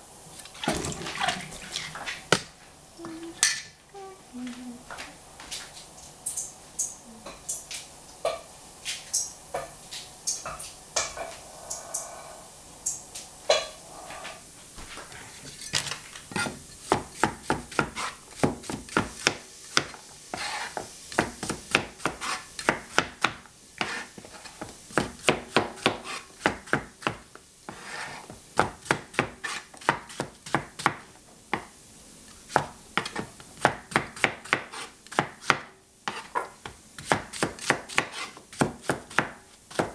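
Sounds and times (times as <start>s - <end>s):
cleaver chopping on cutting board: 32.5s - 39.9s.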